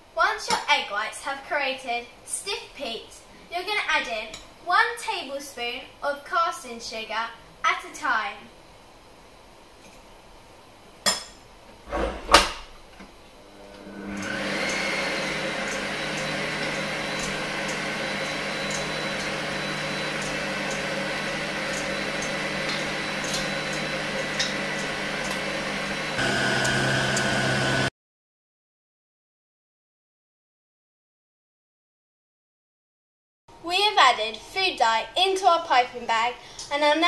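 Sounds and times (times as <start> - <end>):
stand mixer whisking: 13.8 - 27.9.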